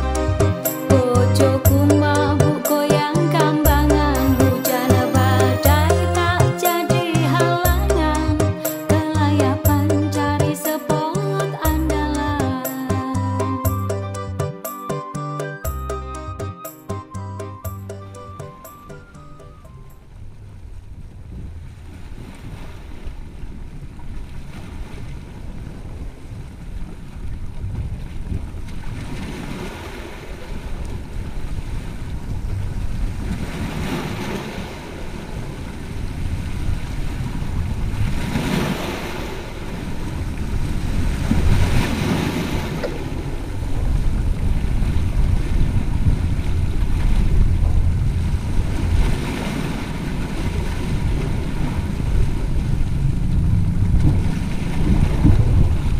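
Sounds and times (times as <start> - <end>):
wind buffeting the microphone: 20.1 - 55.9
sea waves washing against rocks: 24.1 - 55.9.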